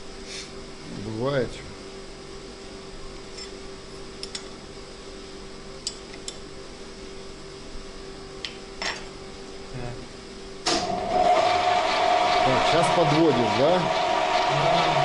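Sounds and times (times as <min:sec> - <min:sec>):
lathe humming: 0:10.7 - 0:15.0.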